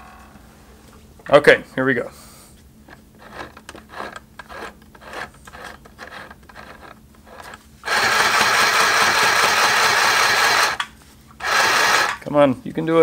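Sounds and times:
electric sewing machine stitching: 0:03.2 - 0:12.2.

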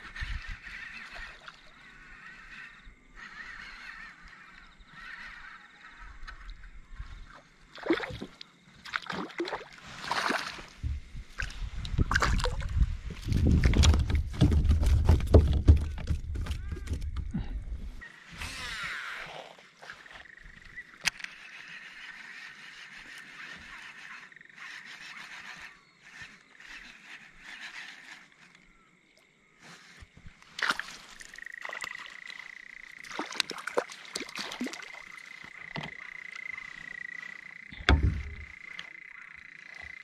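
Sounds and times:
frogs trilling: 0:00.0 - 0:10.7, 0:16.4 - 0:29.1, 0:30.5 - 0:40.0
heavy thump: 0:37.8 - 0:38.4
fishing gear knocking on kayak: 0:37.8 - 0:38.5.

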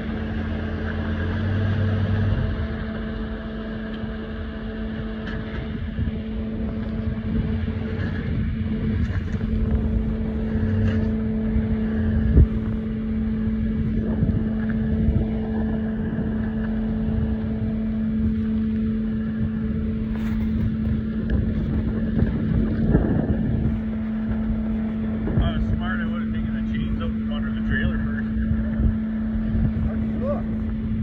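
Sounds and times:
truck engine running: 0:00.0 - 0:31.0.

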